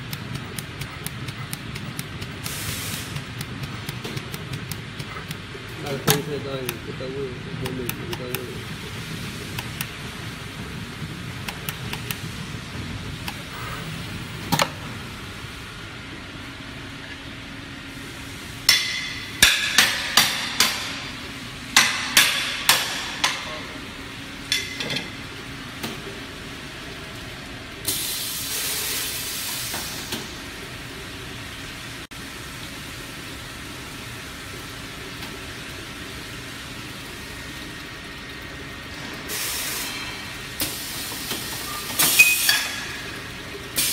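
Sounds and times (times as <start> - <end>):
sharp machine clacks: 0.0 - 6.8
machinery humming: 0.0 - 43.9
air hiss: 2.4 - 3.3, 27.9 - 30.3.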